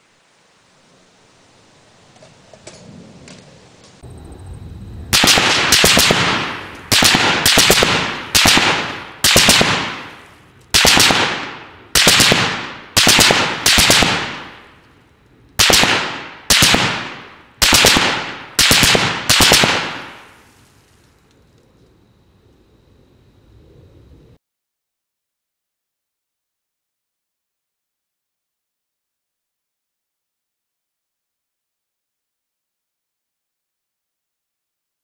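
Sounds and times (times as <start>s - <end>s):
machine gun bursts with echo: 5.1s - 14.7s, 15.6s - 20.4s.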